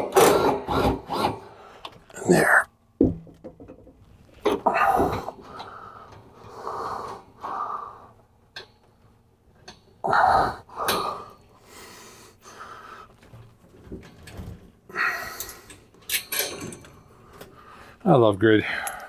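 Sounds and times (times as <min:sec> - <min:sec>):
man breathing heavily: 0:04.6 - 0:08.4, 0:10.0 - 0:13.4, 0:14.9 - 0:16.0, 0:17.1 - 0:18.0, 0:18.6 - 0:19.0.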